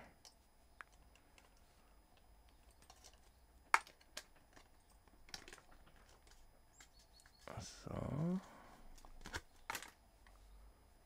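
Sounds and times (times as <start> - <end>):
plastic packaging clicks and taps: 2.6 - 4.7, 9.0 - 10.0.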